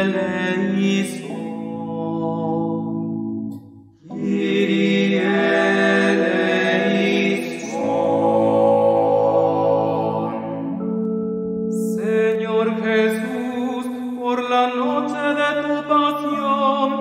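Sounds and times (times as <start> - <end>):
sacred choral music with organ: 0.0 - 17.0.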